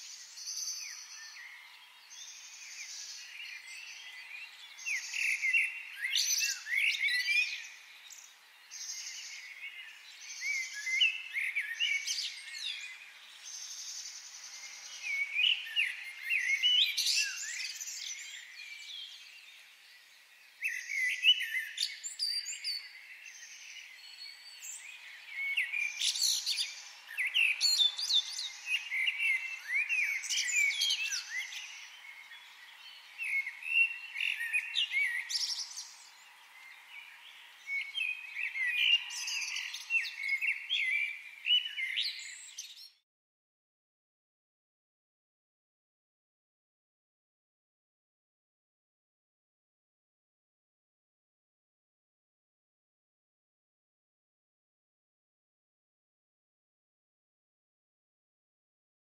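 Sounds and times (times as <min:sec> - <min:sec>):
birds chirping and twittering: 0:00.0 - 0:43.0.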